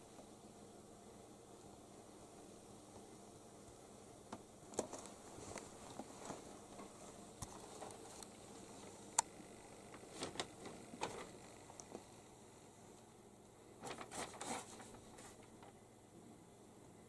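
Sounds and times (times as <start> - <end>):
light rustling on carpet: 4.7 - 9.0.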